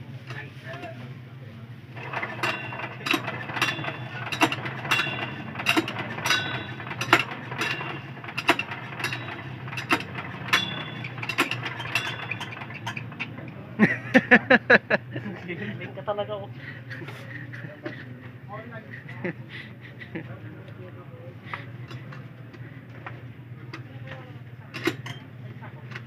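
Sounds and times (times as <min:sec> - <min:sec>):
steady low hum: 0:00.0 - 0:26.0
sharp metallic clicks and clinks: 0:02.0 - 0:13.6, 0:24.8 - 0:25.3.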